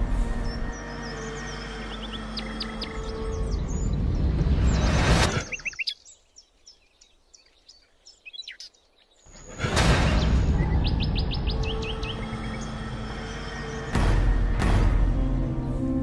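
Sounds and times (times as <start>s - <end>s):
songbirds chirping: 0.0s - 16.0s
loud low-pitched music: 13.7s - 16.0s.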